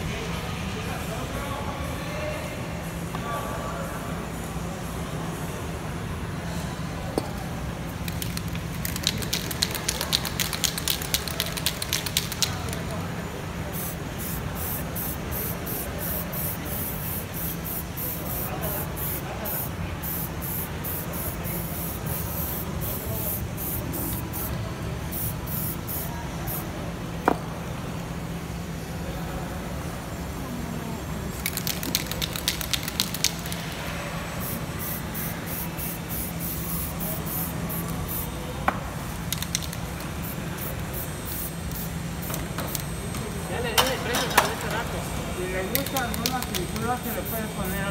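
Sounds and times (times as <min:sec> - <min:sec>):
spray paint cans hissing: 0:07.9 - 0:13.0, 0:13.7 - 0:26.7, 0:31.3 - 0:47.9.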